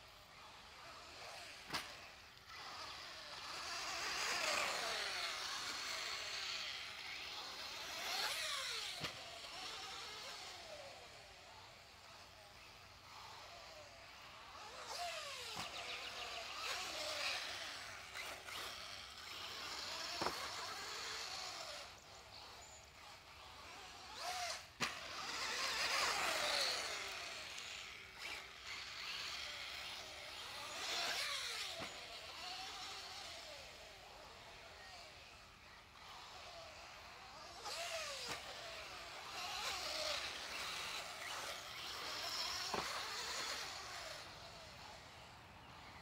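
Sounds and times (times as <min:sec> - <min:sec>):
electric motor whining: 0:00.0 - 0:46.0.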